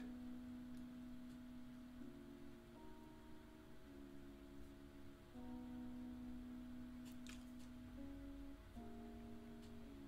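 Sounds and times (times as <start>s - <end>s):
faint background music: 0.0s - 10.0s.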